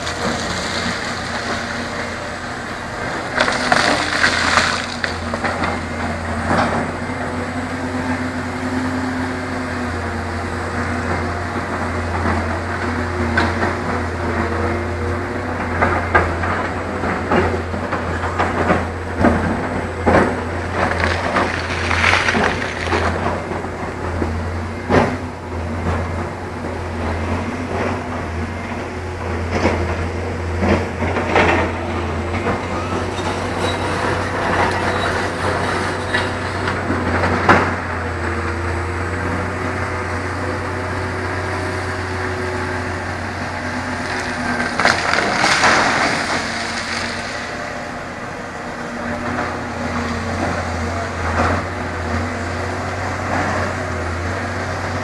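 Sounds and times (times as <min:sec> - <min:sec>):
heavy machinery engines running: 0:00.0 - 0:55.0.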